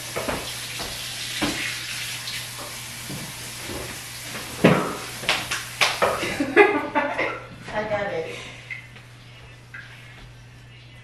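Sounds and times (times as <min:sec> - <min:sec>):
kitchen knocks and clatters: 0:00.1 - 0:01.7, 0:03.0 - 0:06.4.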